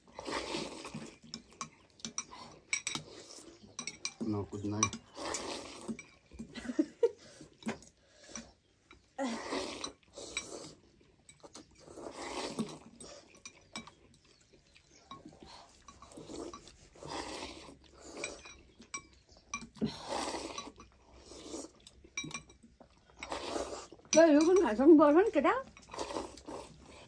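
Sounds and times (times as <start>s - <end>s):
noodles being slurped: 0.0s - 27.0s
cutlery clinking against glass bowls: 1.2s - 5.2s, 5.9s - 6.6s, 7.5s - 9.1s, 12.8s - 16.7s, 18.2s - 19.8s, 20.5s - 21.0s, 22.0s - 23.3s, 24.0s - 24.9s, 25.6s - 26.0s.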